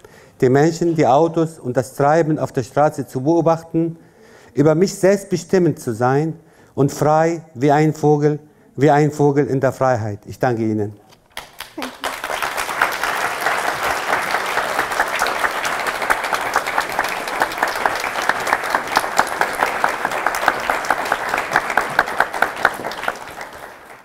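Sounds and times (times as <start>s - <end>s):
audience applauding: 11.3s - 24.0s
close hands clapping a beat: 11.3s - 24.0s.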